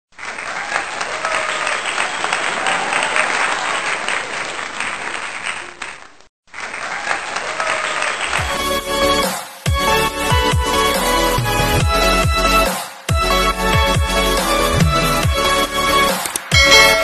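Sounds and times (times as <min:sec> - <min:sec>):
crowd applauding: 0:00.1 - 0:08.8.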